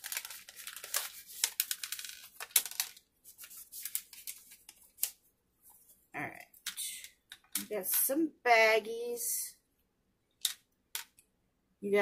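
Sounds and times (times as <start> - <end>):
plastic packet crinkling: 0.0 - 5.2.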